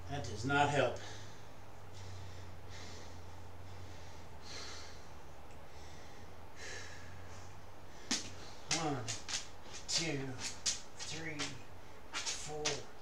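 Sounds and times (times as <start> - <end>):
steady low hum: 0.0 - 13.0
man breathing hard: 1.0 - 8.7.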